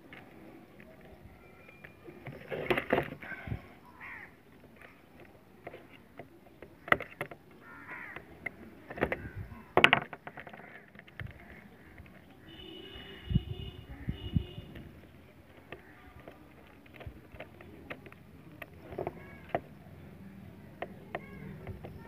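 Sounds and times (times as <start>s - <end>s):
crows cawing: 3.2s - 4.4s, 7.6s - 8.3s, 10.3s - 13.3s.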